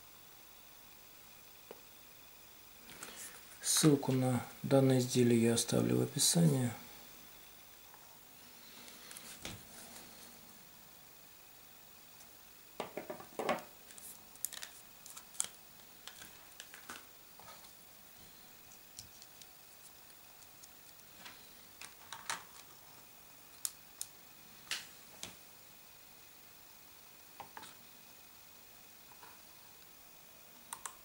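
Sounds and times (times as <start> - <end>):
plastic packaging crackling: 13.9 - 17.6.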